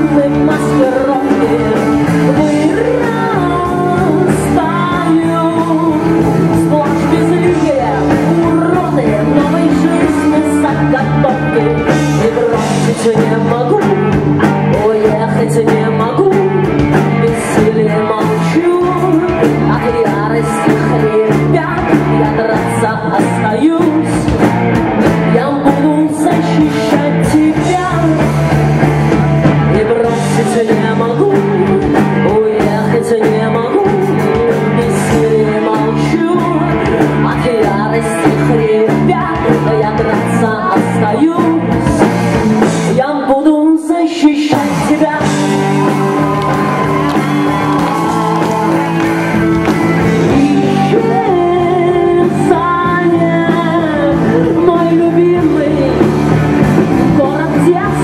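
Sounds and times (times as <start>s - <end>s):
electric guitars: 0.0s - 58.0s
woman singing lead: 0.0s - 58.0s
drum and cymbal hits: 44.6s - 51.1s.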